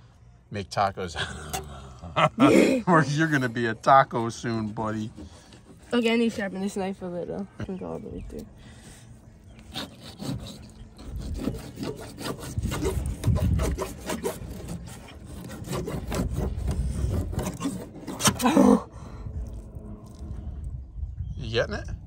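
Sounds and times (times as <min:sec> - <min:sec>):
knife sawing through fish skin: 0:09.6 - 0:18.6.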